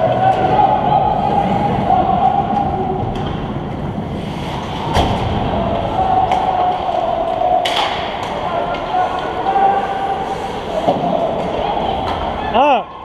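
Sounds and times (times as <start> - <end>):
skates and sticks on ice: 2.2 - 12.4.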